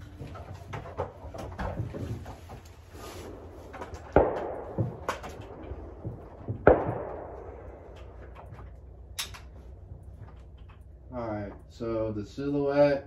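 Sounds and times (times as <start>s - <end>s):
rifle shots with ringing tail: 3.3s - 9.2s.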